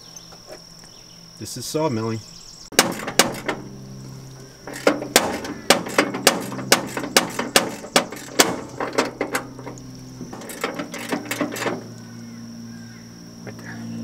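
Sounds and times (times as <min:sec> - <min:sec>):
steady low hum: 0:00.0 - 0:14.0
sharp metallic knocks: 0:02.7 - 0:03.8, 0:04.6 - 0:12.0.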